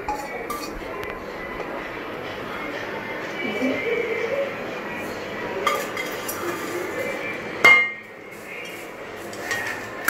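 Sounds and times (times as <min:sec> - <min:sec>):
spatula scraping inside pan: 0:00.0 - 0:00.8.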